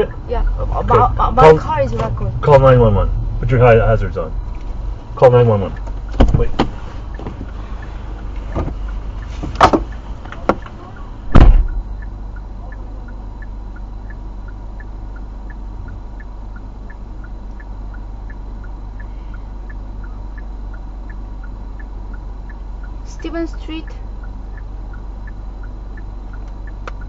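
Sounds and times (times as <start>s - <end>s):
engine idle hum: 0.0s - 27.0s
heavy thump: 6.1s - 7.5s, 11.3s - 11.9s
hazard-light flasher ticking: 9.9s - 27.0s
sharp clicks: 25.6s - 27.0s.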